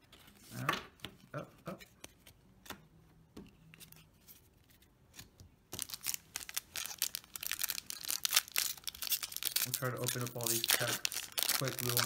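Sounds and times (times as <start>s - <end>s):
foil pack crinkling: 5.8s - 12.0s.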